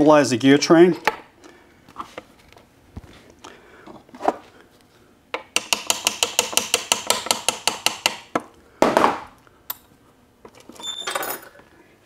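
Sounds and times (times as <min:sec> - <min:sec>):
hammer tapping on metal gears: 0:05.6 - 0:08.2.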